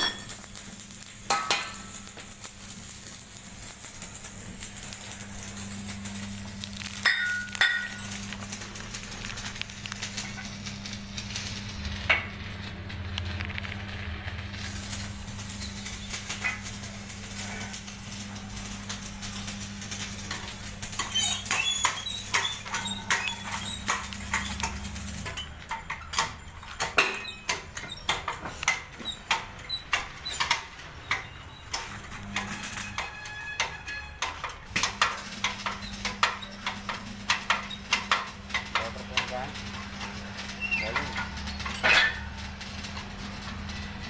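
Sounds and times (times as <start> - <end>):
metal-on-metal clicks and clinks: 0.0 - 10.5, 18.6 - 40.2
steady electric hum: 0.0 - 44.0.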